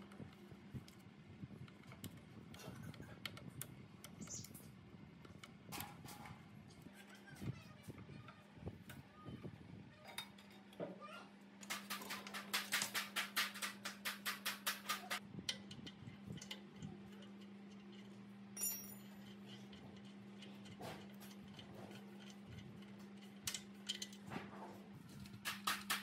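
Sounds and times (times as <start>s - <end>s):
metallic clink: 18.6s - 19.3s.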